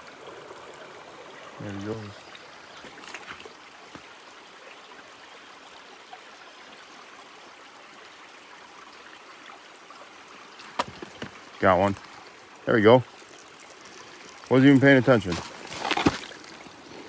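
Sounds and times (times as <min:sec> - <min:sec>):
creek running over rocks: 0:00.0 - 0:17.0.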